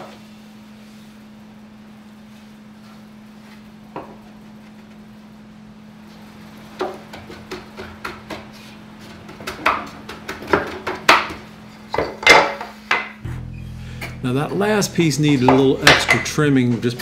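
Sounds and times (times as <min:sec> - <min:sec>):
faint steady hum: 0:11.6 - 0:17.0.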